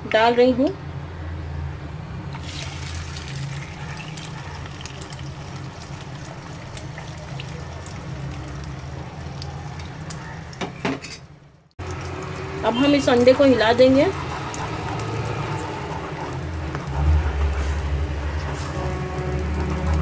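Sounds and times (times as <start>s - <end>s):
oil crackling: 2.3s - 10.8s, 11.8s - 20.0s
eggs sizzling in hot oil: 2.4s - 10.8s, 11.7s - 20.0s.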